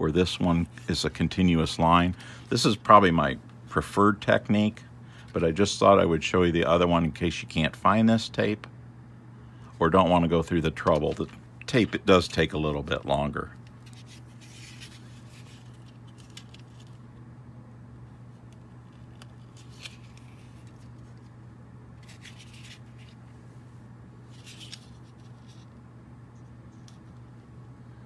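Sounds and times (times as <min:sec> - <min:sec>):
steady low hum: 0:00.0 - 0:28.0
faint rustles and scrapes: 0:13.7 - 0:17.1, 0:18.7 - 0:21.4, 0:22.0 - 0:23.6, 0:24.2 - 0:27.5.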